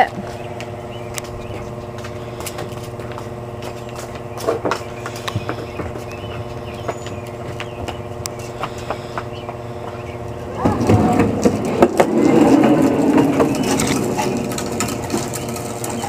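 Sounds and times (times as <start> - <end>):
steady hum: 0.0 - 16.0
rumbling clatter with knocks: 1.2 - 16.0
toy car wheels rolling on plastic track: 10.6 - 16.0.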